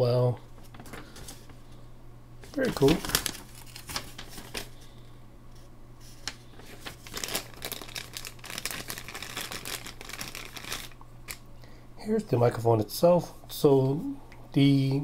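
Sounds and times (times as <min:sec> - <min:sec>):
paper rustling and crinkling: 0:00.6 - 0:01.7, 0:02.4 - 0:04.9, 0:06.0 - 0:11.0.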